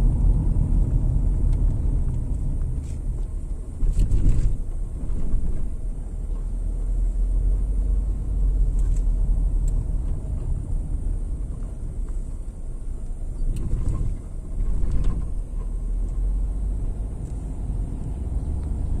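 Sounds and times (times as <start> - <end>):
tyre and engine rumble: 0.0 - 19.0.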